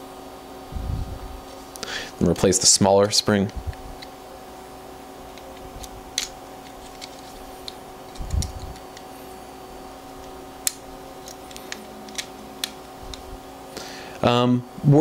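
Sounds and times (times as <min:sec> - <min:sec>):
faint steady hum: 0:00.0 - 0:15.0
plastic and metal parts clicking: 0:05.3 - 0:09.1.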